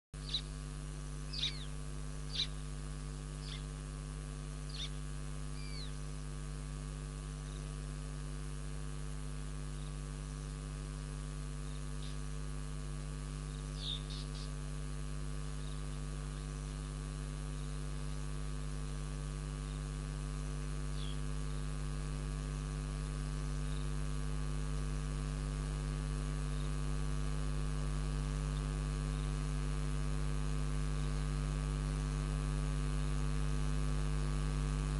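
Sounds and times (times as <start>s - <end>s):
high falling bird calls: 0.2s - 0.6s, 1.3s - 3.8s, 4.6s - 6.1s, 11.6s - 12.3s, 13.5s - 14.7s, 15.4s - 16.8s, 20.9s - 21.3s
electrical hum: 0.2s - 34.9s.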